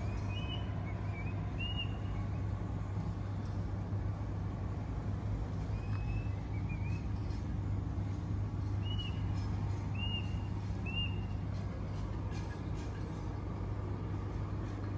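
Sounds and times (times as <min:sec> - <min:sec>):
bird chirping: 0:00.0 - 0:02.5, 0:05.6 - 0:07.5, 0:08.6 - 0:11.5
low mechanical hum: 0:00.0 - 0:14.9.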